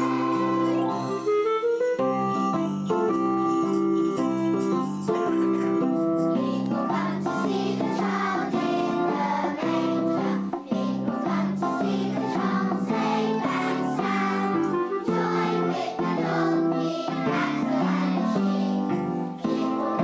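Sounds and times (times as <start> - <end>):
children singing: 0.0 - 1.2, 6.3 - 20.0
keyboard accompaniment: 0.0 - 20.0.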